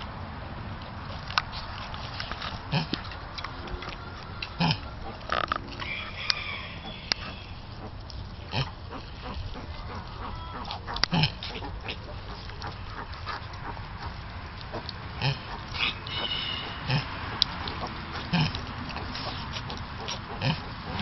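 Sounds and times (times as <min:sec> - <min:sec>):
pig grunts: 0:02.6 - 0:05.8, 0:07.2 - 0:21.0
piglets squealing: 0:03.6 - 0:13.4, 0:14.8 - 0:17.2.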